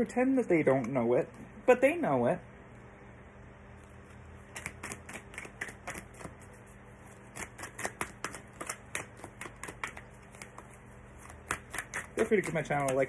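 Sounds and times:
cards being shuffled: 3.8 - 13.0.

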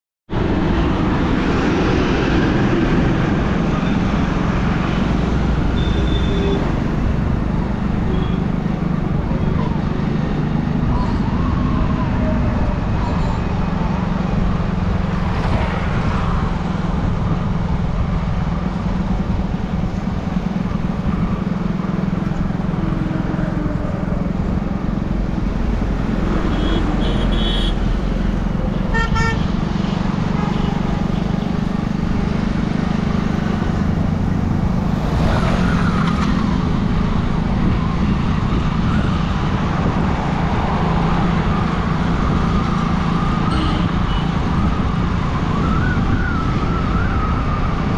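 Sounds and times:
road and wind noise: 0.3 - 47.9
vehicle horn toots: 5.8 - 6.7, 26.5 - 27.8, 28.9 - 29.5, 43.5 - 44.3.

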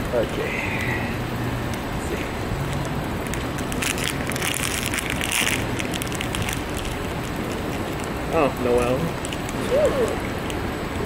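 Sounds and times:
steady background rush: 0.0 - 11.0
foil packet crinkling: 2.7 - 9.6.

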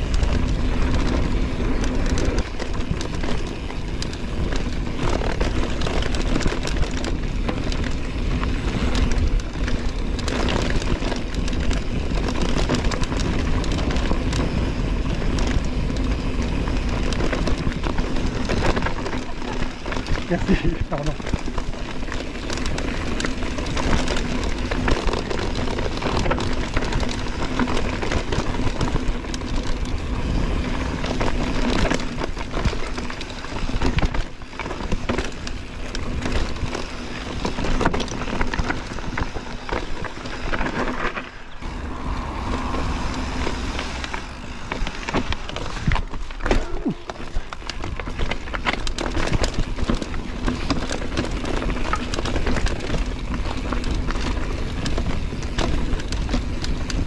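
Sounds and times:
bike rattling over bumps: 0.0 - 57.0
bike tyres on dirt and stones: 0.0 - 57.0
wind buffeting microphone: 35.4 - 51.4.

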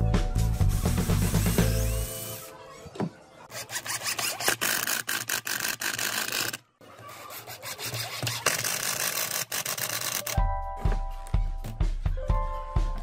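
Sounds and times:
drill driving screws into wood: 3.6 - 6.6, 8.2 - 10.4.

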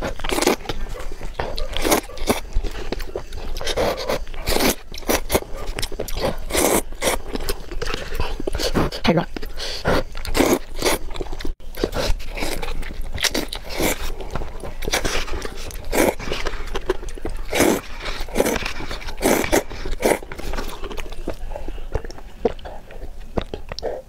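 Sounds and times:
chewing: 0.0 - 24.0
noodle slurping: 14.8 - 21.2.

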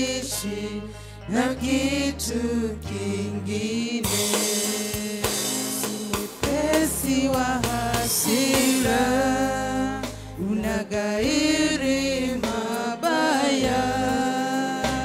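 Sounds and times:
bass and drums: 2.9 - 15.0.

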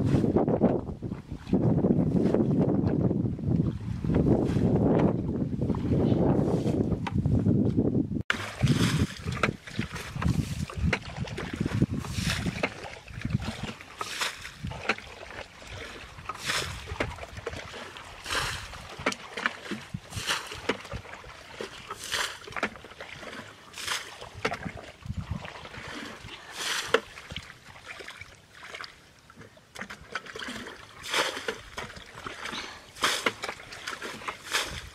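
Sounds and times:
water sloshing in bucket: 8.3 - 34.9
water splashing: 8.3 - 34.9.

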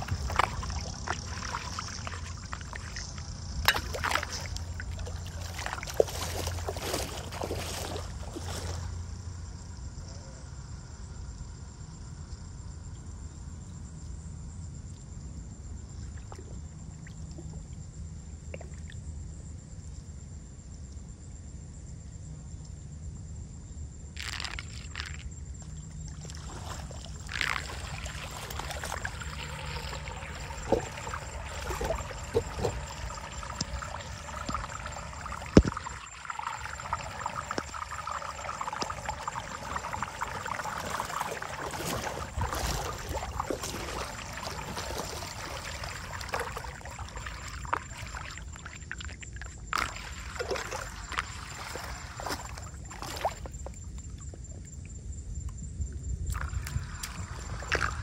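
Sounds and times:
water gurgling down a drain: 0.0 - 9.0, 26.0 - 53.8, 56.3 - 58.0.

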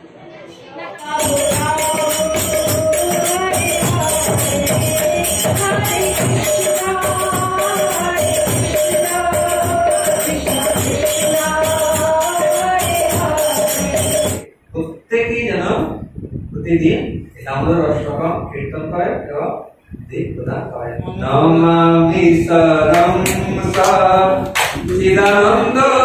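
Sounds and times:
hand percussion beat: 1.0 - 14.5.

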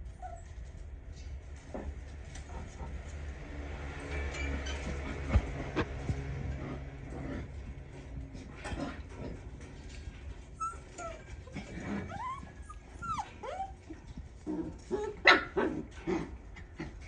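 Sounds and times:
puppies whining and yipping: 0.0 - 0.6, 10.4 - 14.2.

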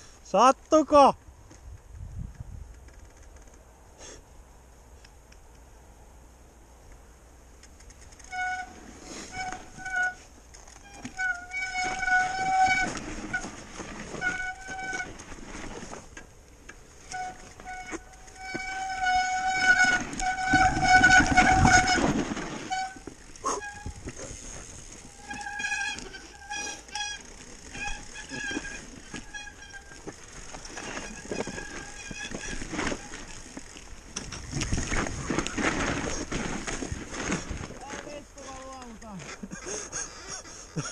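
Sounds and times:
bike disc brakes squealing: 8.1 - 16.0, 17.0 - 37.5.

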